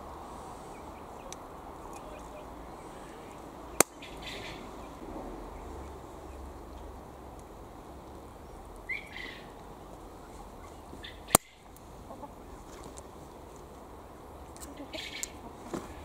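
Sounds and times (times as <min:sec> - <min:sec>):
hen clucking: 0:10.2 - 0:12.8, 0:14.5 - 0:16.0
pliers snipping wire: 0:11.3 - 0:11.6.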